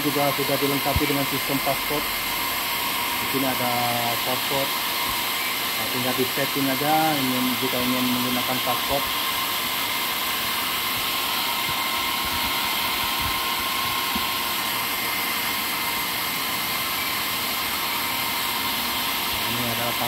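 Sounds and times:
cooling fans rushing air: 0.0 - 20.0
thin steady whine: 0.0 - 20.0.

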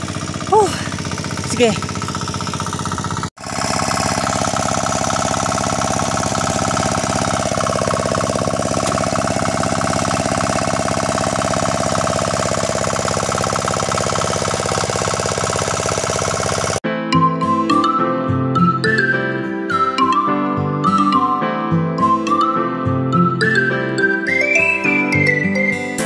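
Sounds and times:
hand tractor engine running: 0.0 - 16.8.

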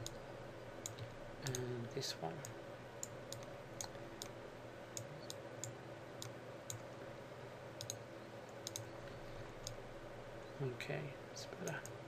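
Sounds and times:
faint steady hum: 0.0 - 12.0
computer mouse clicking: 2.4 - 4.4, 7.8 - 9.8.

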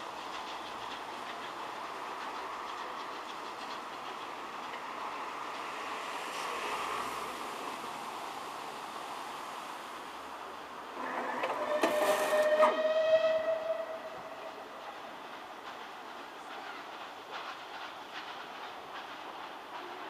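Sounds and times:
steam train pulling away: 10.8 - 20.0.

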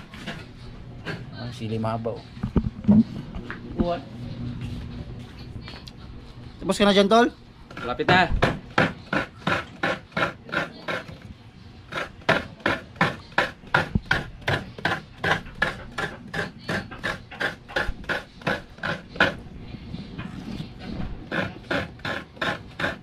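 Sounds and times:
coconut grating rasps: 7.7 - 11.2, 11.9 - 19.4, 21.2 - 23.0.

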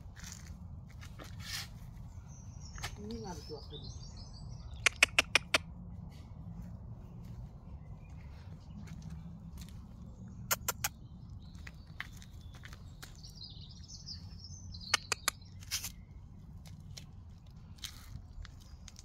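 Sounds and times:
steady low rumble: 0.0 - 19.0
bird singing: 1.8 - 5.6, 7.0 - 16.4
sharp clicks: 4.8 - 5.7, 10.5 - 11.0, 14.8 - 16.0.

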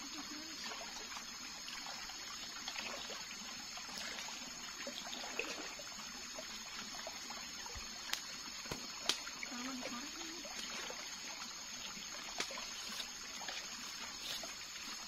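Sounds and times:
trickle of running water: 0.0 - 15.0
faint ticks: 8.0 - 10.7.

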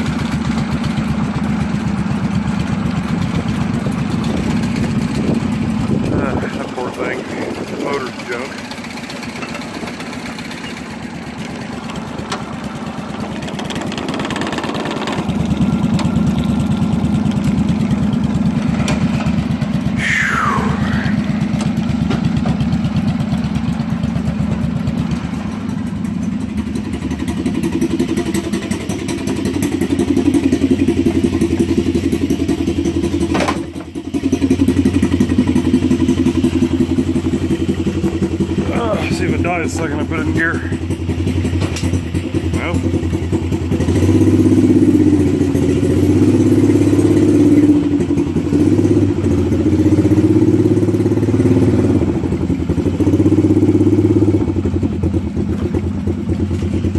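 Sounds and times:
four-wheeler engine idling: 0.0 - 56.9
small tractor engine running: 0.0 - 56.9
person talking: 20.0 - 21.2.

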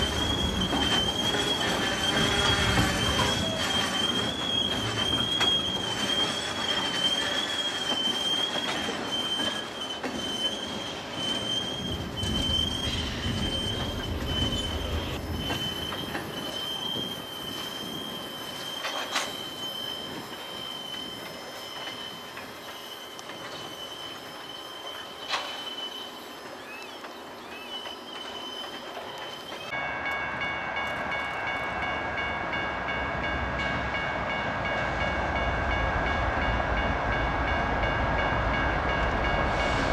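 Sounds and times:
train wheels squealing: 0.0 - 39.9
crossing warning bell ringing: 29.7 - 39.8.

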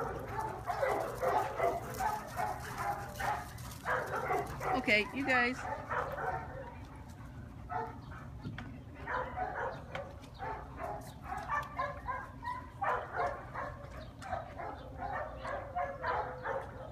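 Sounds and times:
dogs barking: 0.0 - 8.4, 9.0 - 16.9.

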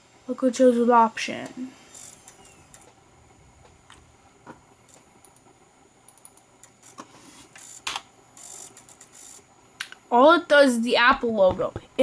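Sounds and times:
room hum: 0.0 - 12.0.

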